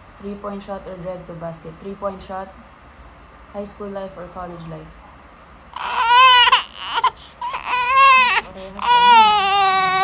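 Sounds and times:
person wailing: 5.8s - 10.0s.

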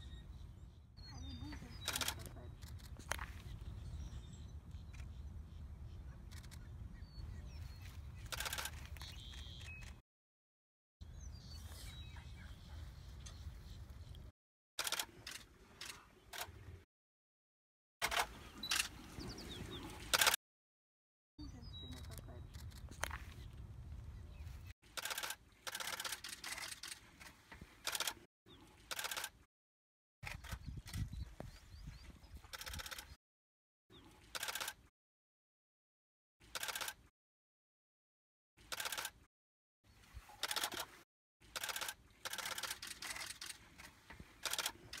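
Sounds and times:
camera shutter bursts: 1.8s - 2.8s, 8.3s - 10.0s, 14.8s - 15.4s, 25.0s - 27.0s, 27.8s - 28.2s, 28.9s - 29.4s, 34.4s - 34.8s, 36.5s - 37.0s, 38.7s - 39.2s, 41.6s - 43.6s, 44.4s - 45.0s.

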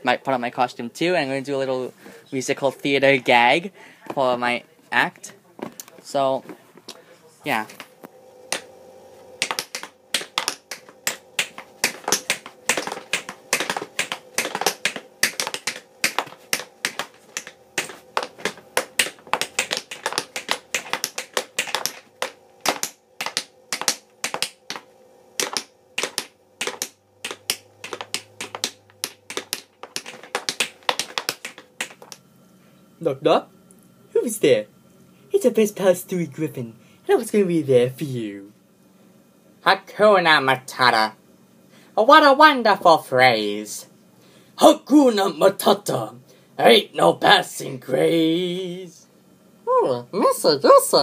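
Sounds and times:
tap shoes clicking on floor: 9.4s - 32.2s.

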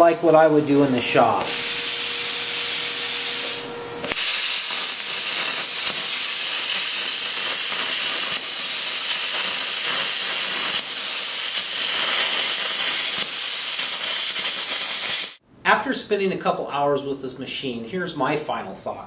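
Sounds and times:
air hiss: 0.0s - 15.4s
plasma cutting arc hiss: 0.0s - 15.4s
arc starting snap: 0.9s - 15.4s.

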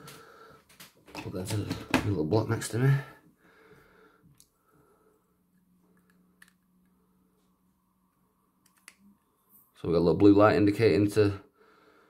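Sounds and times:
faint low hum: 1.2s - 12.0s.

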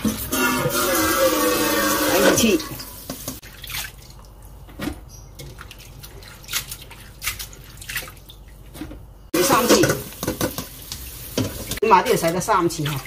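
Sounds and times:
water dripping and splashing: 2.1s - 4.7s, 5.3s - 8.8s, 9.8s - 13.0s.

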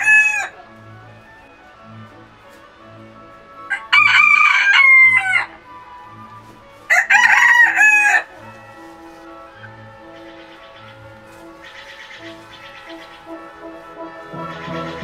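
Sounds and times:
rooster crowing: 0.0s - 0.5s, 3.7s - 5.6s, 6.9s - 8.4s
quiet background music: 0.0s - 15.0s.

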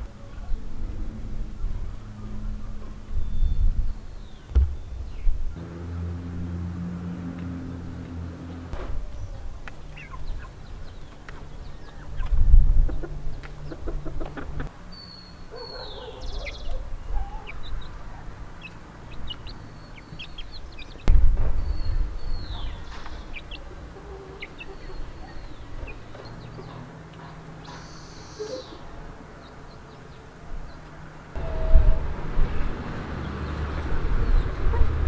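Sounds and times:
low thumps: 3.5s - 9.9s, 21.0s - 23.3s
chickens clucking: 8.0s - 14.8s, 15.5s - 21.1s, 22.4s - 32.0s
chicks peeping: 8.0s - 32.1s.

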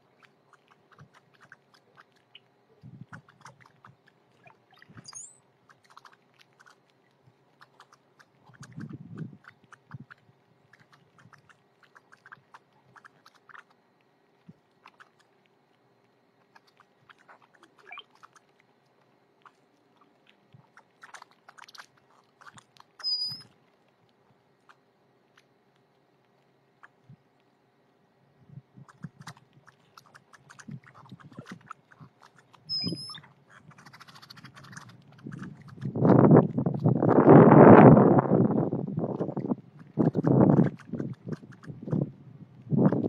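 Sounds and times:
birds pecking at seed: 0.0s - 28.0s, 28.7s - 37.4s, 39.0s - 43.0s
high wavering electronic chirp: 4.8s - 5.4s, 23.0s - 23.5s, 32.7s - 33.3s.

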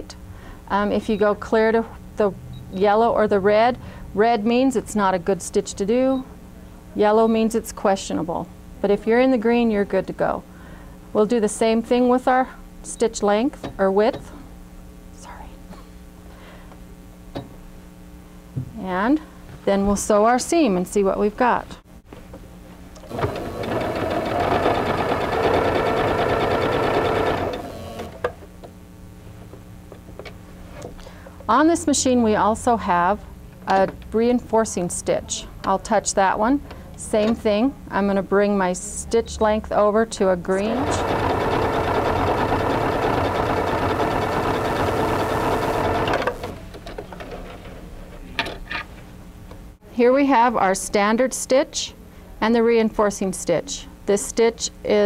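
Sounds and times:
sewing machine stitching: 23.0s - 28.3s, 40.6s - 46.6s.

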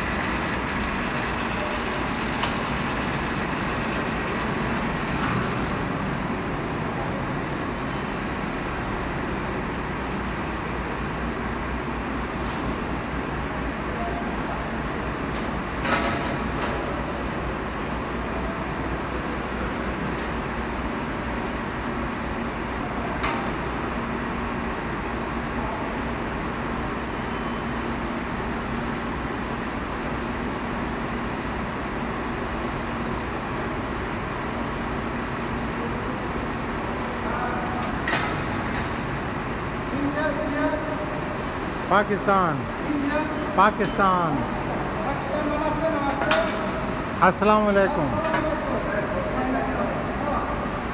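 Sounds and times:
textile machinery running: 0.0s - 26.9s.

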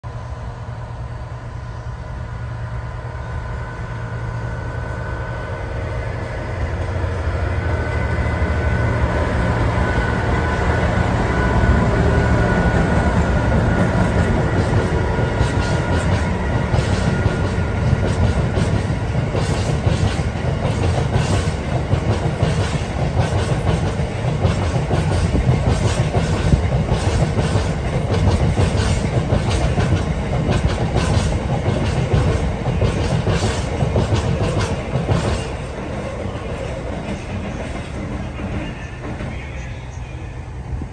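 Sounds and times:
diesel locomotive engine drone: 0.0s - 40.9s
train wheels clickety-clack: 10.0s - 39.7s.

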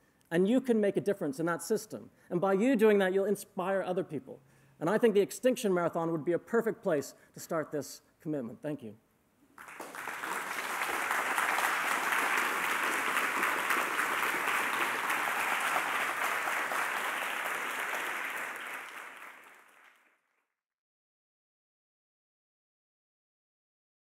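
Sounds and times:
audience applauding: 9.6s - 20.2s.

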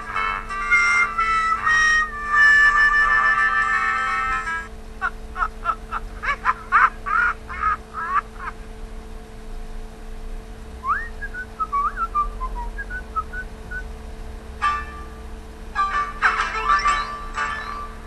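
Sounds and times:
high squeaky sung notes: 0.1s - 4.1s.

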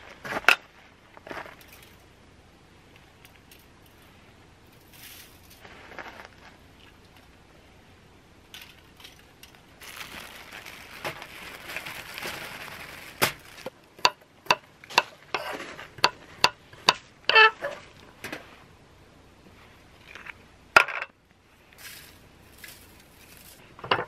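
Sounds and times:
rustling hiss: 0.0s - 13.9s, 21.3s - 23.8s.

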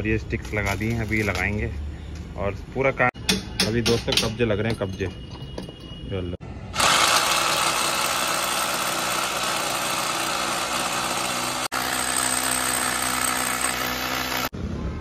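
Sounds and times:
electric drill drilling into steel: 6.8s - 14.5s.

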